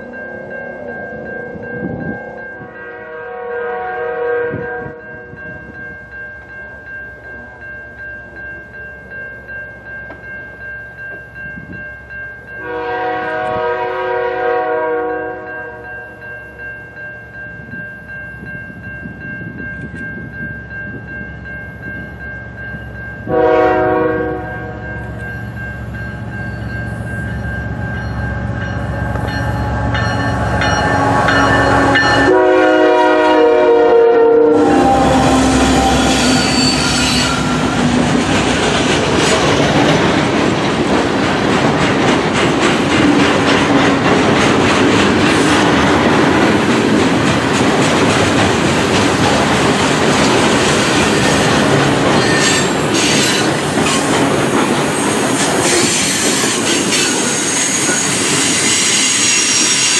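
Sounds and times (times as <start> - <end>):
train rumble: 0.0 - 59.9
locomotive air horn blasts: 2.8 - 5.0, 12.6 - 15.8, 23.3 - 24.8, 30.8 - 37.9.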